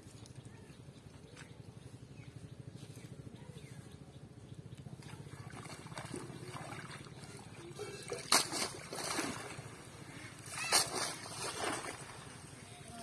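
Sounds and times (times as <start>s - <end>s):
water splashing and streaming: 5.0s - 13.0s
loud splashes: 5.3s - 12.5s
fish thrashing in net: 8.1s - 9.8s, 10.4s - 12.2s.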